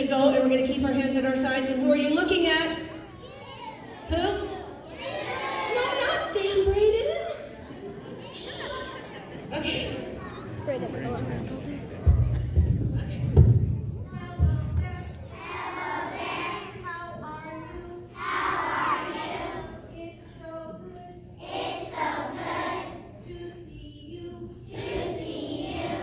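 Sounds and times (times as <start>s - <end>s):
children singing: 3.2s - 5.8s, 15.2s - 26.0s.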